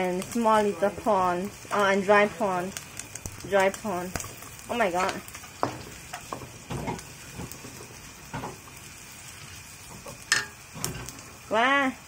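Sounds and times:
food sizzling in a wok: 0.0 - 12.0
wooden spatula scraping a wok: 4.9 - 8.7.

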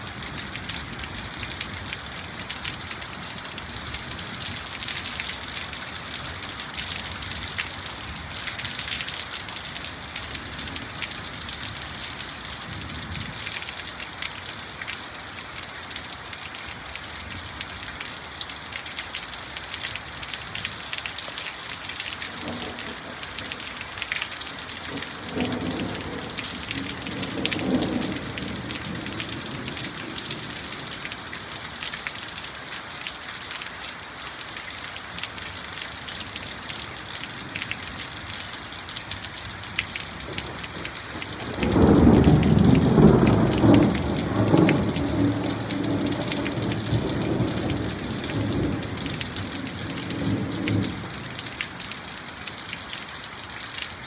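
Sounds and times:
heavy rain falling: 0.0 - 54.0
rolling thunder: 24.9 - 30.5, 40.3 - 51.0.

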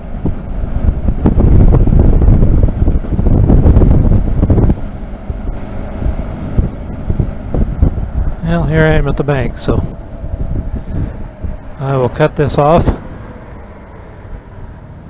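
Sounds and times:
wind buffeting microphone: 0.0 - 14.8.

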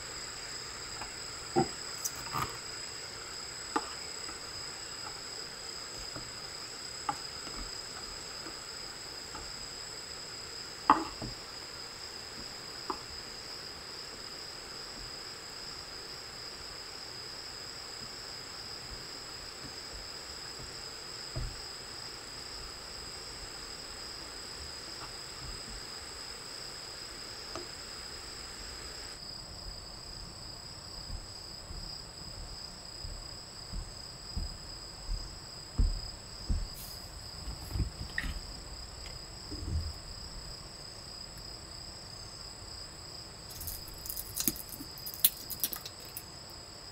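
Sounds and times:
soft hiss: 0.0 - 46.7
night insects trilling: 0.0 - 46.9
cup and utensils on wooden table: 43.5 - 46.3.

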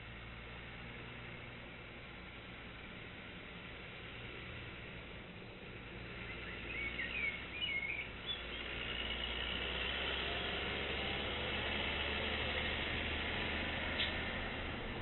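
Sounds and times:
steady outdoor noise: 0.0 - 15.0
songbird chirping: 6.1 - 9.4.

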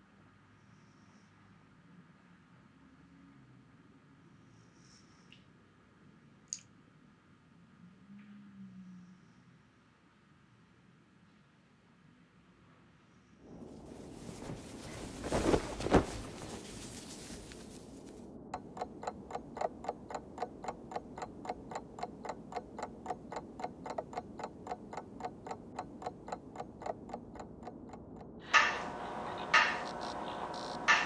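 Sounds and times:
clock ticking: 18.4 - 31.0
knocks: 18.6 - 31.0
loud ringing: 28.1 - 31.0.

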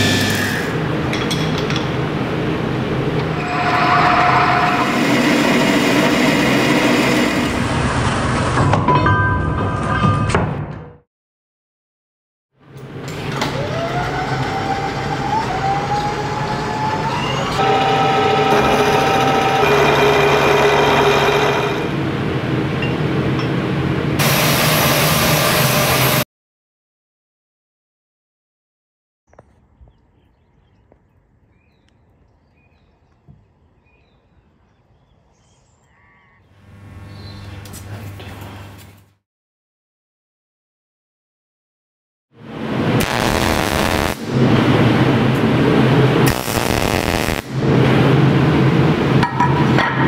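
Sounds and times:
milling machine cutting metal: 3.3 - 7.8, 17.6 - 22.1
loud steady hum with hiss: 42.4 - 49.4.

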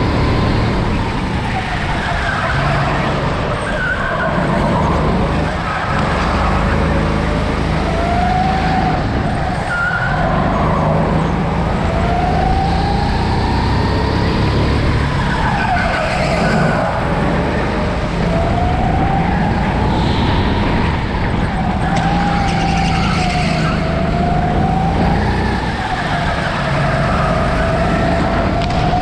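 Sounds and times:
go-kart engine at speed: 0.0 - 29.0
tyre squeal: 19.8 - 23.9.

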